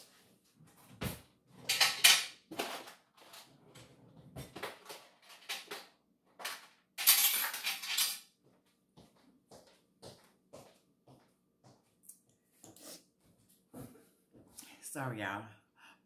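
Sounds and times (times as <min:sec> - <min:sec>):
metal kitchen utensils clattering: 0:01.6 - 0:03.5, 0:04.6 - 0:08.3.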